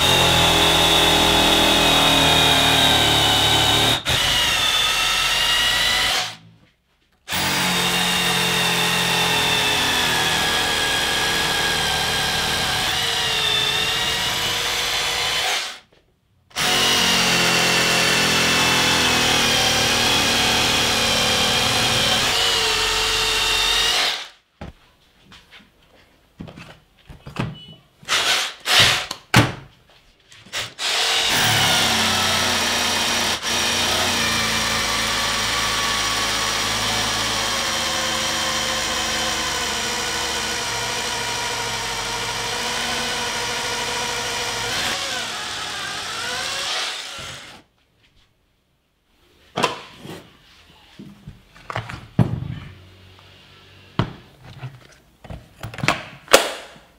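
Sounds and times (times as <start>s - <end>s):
rotary hammer drill into concrete: 0.0s - 6.4s, 7.3s - 15.8s, 16.6s - 24.4s, 30.5s - 47.6s.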